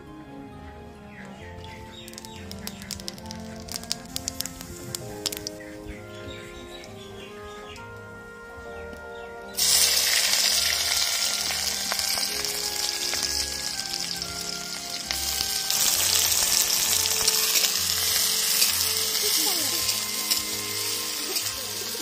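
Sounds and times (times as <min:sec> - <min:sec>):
onions sizzling in hot oil: 0:01.9 - 0:06.0, 0:09.6 - 0:22.0.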